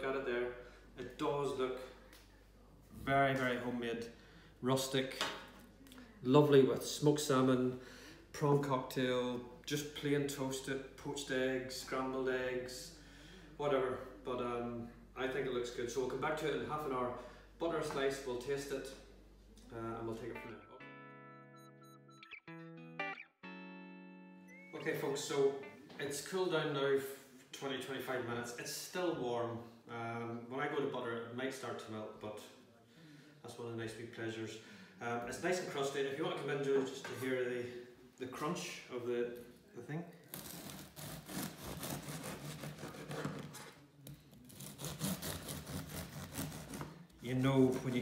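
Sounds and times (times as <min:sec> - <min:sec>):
guitar music: 0:20.1 - 0:26.0
bread knife sawing through crust: 0:40.3 - 0:43.5, 0:44.5 - 0:47.0.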